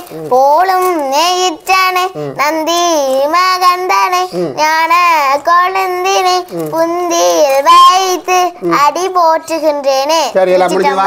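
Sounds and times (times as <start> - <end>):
girl singing: 0.0 - 11.0
girl breathing: 2.1 - 2.4, 4.2 - 4.7, 6.5 - 6.8.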